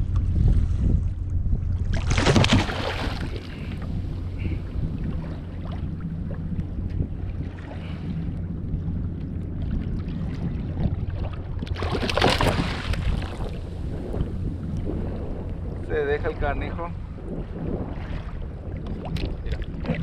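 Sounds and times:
water lapping around kayak: 0.0s - 20.0s
wind buffeting microphone: 0.0s - 20.0s
fish splashing at surface: 2.0s - 3.4s.

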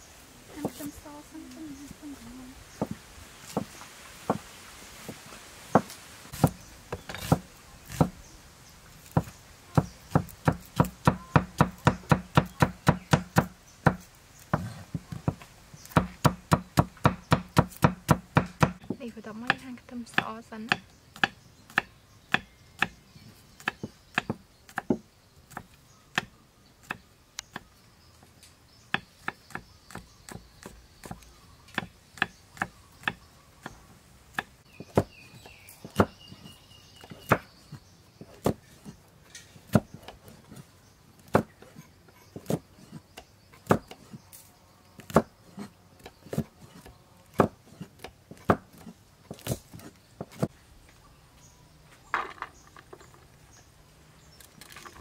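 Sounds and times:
knife chopping on wooden block: 5.8s - 8.2s, 9.0s - 23.0s, 23.6s - 27.6s, 45.0s - 50.5s.

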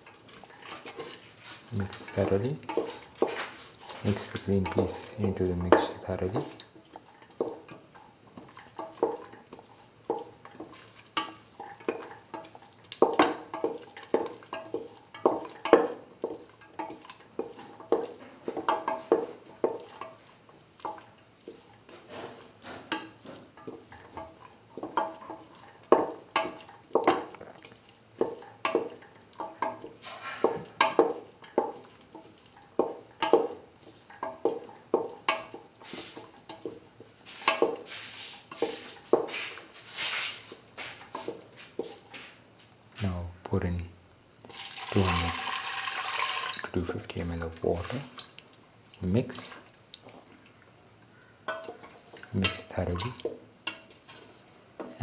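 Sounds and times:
spoon scraping metal pot: 0.3s - 41.4s.

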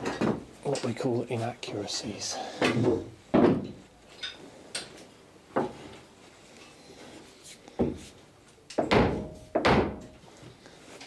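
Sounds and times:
wooden knocks and clunks: 0.0s - 0.5s, 2.6s - 3.8s, 8.8s - 10.2s.

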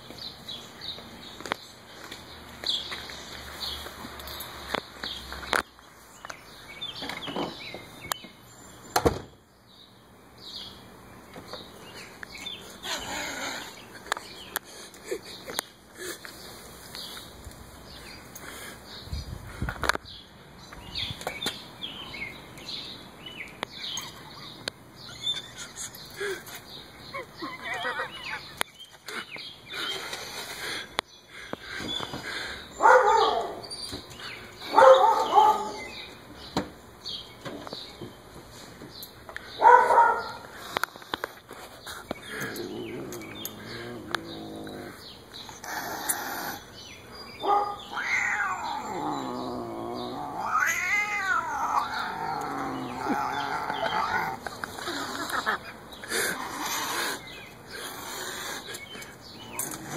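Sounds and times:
cat yowling: 47.4s - 54.4s.

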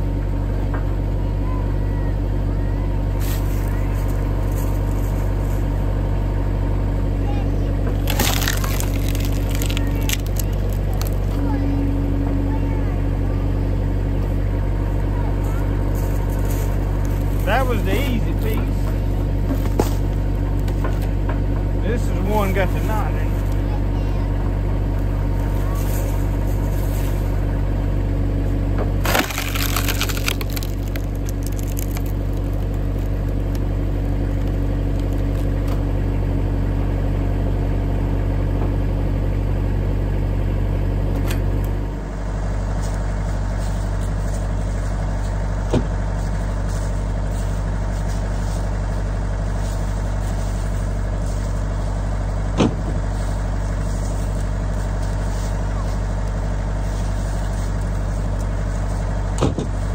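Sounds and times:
tractor engine running: 0.0s - 59.9s
wood cracking and splintering: 7.9s - 11.5s, 15.9s - 21.1s, 28.8s - 35.8s.

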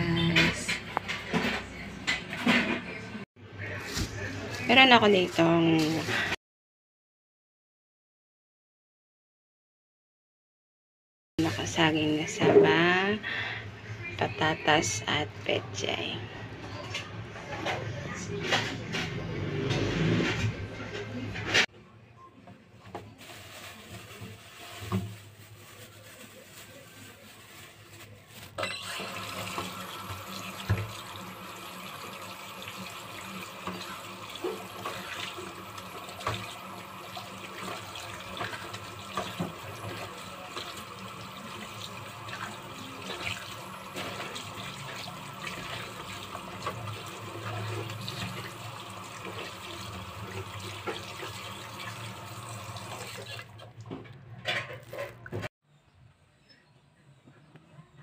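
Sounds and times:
tap water running into sink: 28.8s - 54.0s.

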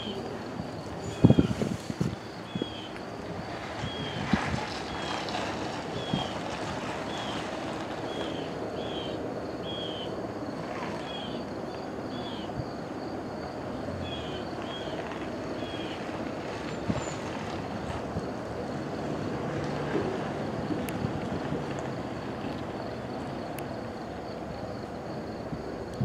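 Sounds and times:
wind on microphone: 0.0s - 7.7s, 16.4s - 19.3s
distant diesel train rumble: 0.0s - 26.0s.

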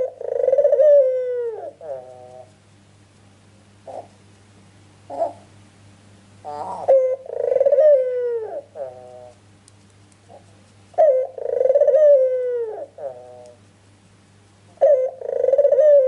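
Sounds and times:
dove cooing: 0.0s - 2.6s, 3.8s - 4.2s, 5.1s - 5.5s, 6.4s - 9.4s, 10.3s - 13.6s, 14.8s - 16.0s.

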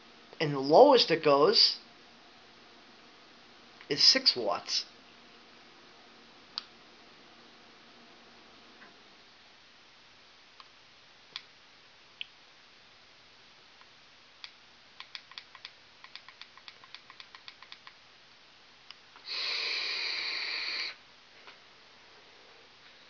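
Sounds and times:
steady hiss of vape draw: 18.9s - 23.0s.

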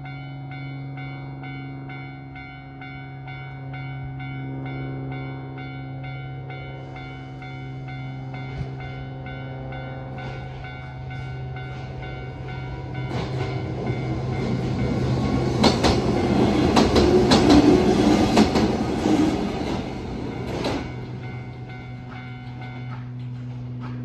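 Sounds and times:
electric train passing: 0.0s - 24.0s
level crossing warning bell: 0.0s - 24.0s
wheels clacking over rail joints: 10.2s - 24.0s.

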